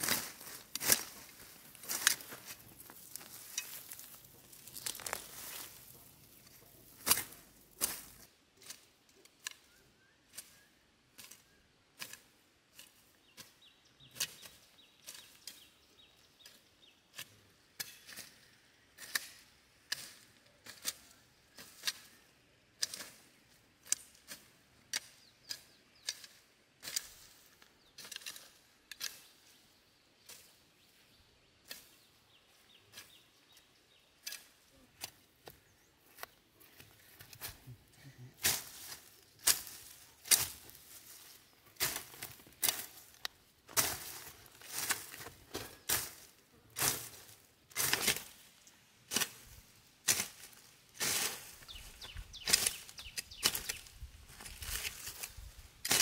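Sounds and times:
weed stems snapping: 0.0 - 6.4, 38.4 - 41.1, 41.8 - 46.2, 50.0 - 56.0
rustling of plants: 0.0 - 9.7, 10.3 - 56.0.

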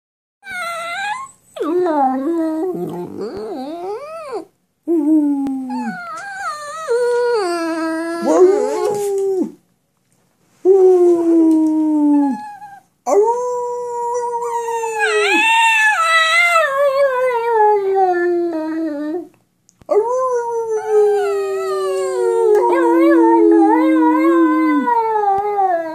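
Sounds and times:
dog howling: 5.7 - 9.6, 11.6 - 19.3, 19.9 - 25.9.

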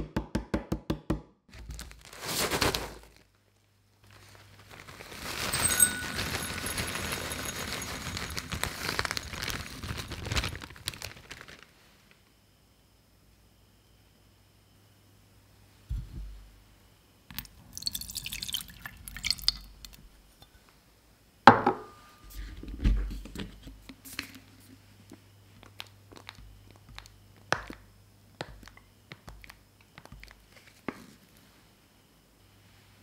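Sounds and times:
water dripping: 17.4 - 20.0
water pouring into saucepan: 17.7 - 20.0.

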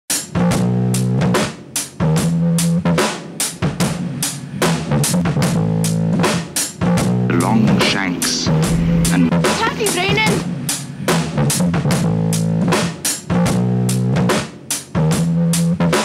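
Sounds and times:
drum kit beat: 0.1 - 16.0
rock band music: 6.2 - 13.7.

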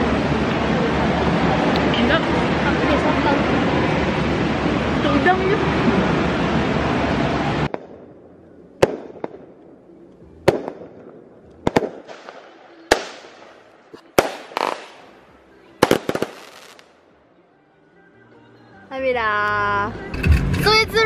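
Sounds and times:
fireworks bangs: 5.6 - 9.7, 10.4 - 15.2, 15.8 - 16.9.

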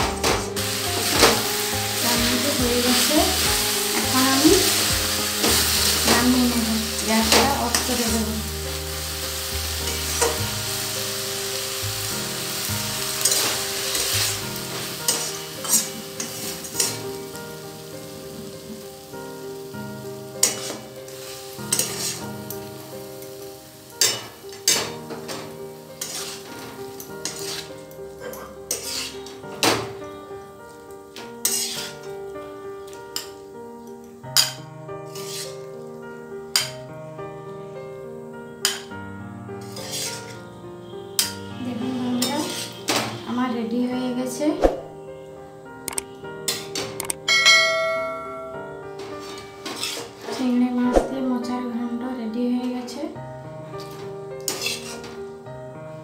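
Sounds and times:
food sizzling in a metal pan: 0.0 - 45.0, 45.8 - 51.7, 52.7 - 56.0
spatula scraping a pan: 0.6 - 8.2, 9.5 - 10.5, 12.6 - 17.2, 20.4 - 22.6, 24.0 - 29.4, 31.4 - 32.1, 34.4 - 35.7, 36.5 - 36.8, 38.6 - 38.9, 39.6 - 43.2, 46.5 - 46.8, 49.0 - 50.6, 53.8 - 55.2.

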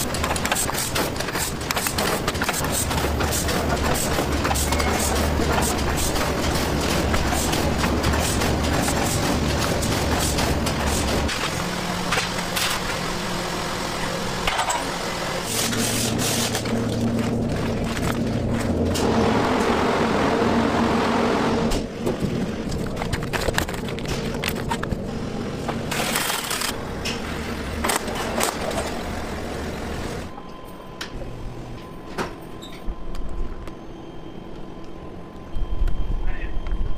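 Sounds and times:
factory machinery hum: 0.0 - 36.9
clatter of pouches and equipment: 22.6 - 25.0.

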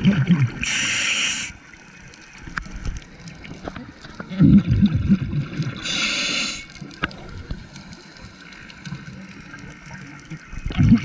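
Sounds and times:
exhaled bubbles gurgling: 0.0 - 11.0
regulator inhalation hiss: 0.6 - 1.7, 5.8 - 6.8.

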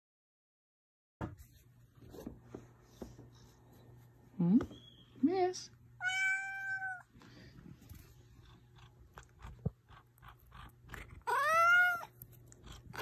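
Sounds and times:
cat meowing: 6.0 - 7.1, 11.2 - 12.2.

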